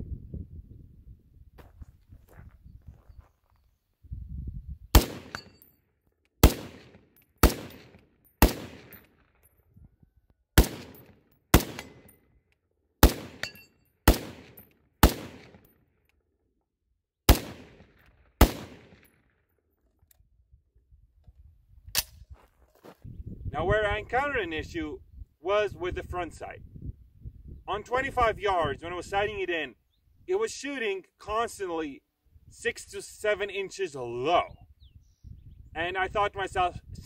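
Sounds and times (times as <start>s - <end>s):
rifle shots echoing: 5.0s - 5.6s, 6.4s - 9.2s, 10.6s - 12.1s, 13.0s - 15.7s, 17.3s - 19.2s.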